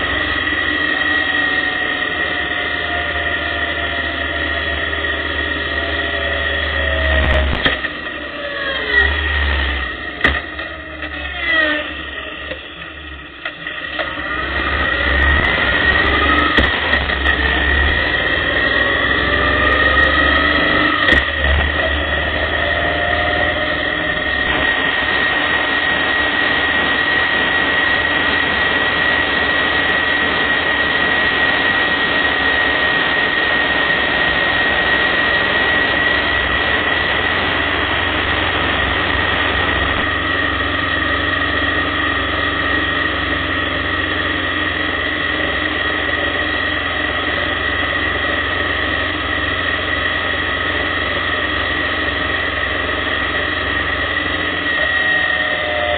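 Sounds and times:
motorcycle engine whine: 0.0s - 55.9s.

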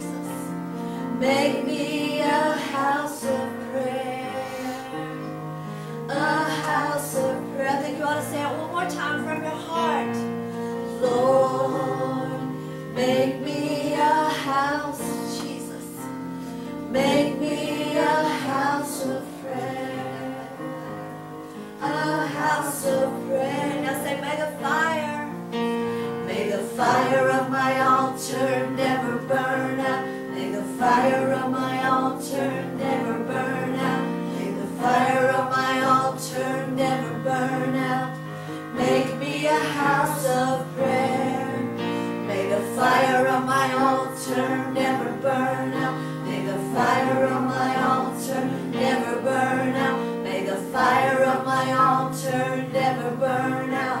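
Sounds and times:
woman singing: 1.2s - 5.3s, 6.1s - 10.3s, 10.9s - 16.1s, 16.9s - 20.6s, 21.8s - 25.4s.

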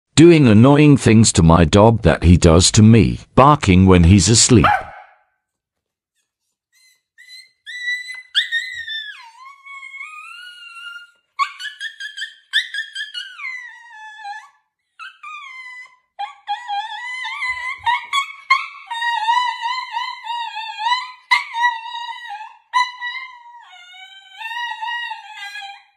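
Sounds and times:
dog whining howls: 7.2s - 25.9s.

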